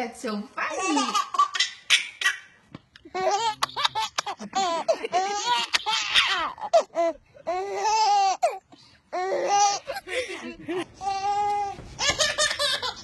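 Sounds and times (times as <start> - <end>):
baby laughing: 0.7 - 2.5, 3.1 - 8.6, 9.2 - 10.2, 11.0 - 13.0.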